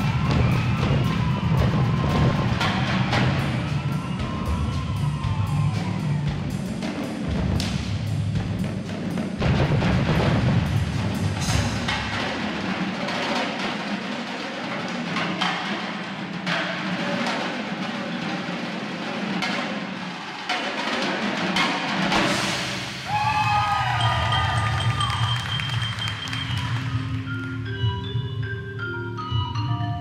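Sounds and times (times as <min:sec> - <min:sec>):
marching drums: 0:00.0 - 0:27.6
marimbas and mallet keyboards: 0:24.0 - 0:30.0.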